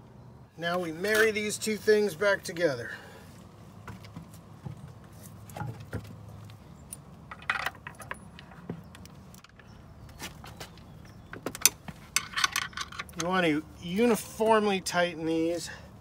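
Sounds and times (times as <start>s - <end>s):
metal bolts clicking and knocking: 6.9s - 9.7s, 11.0s - 13.4s.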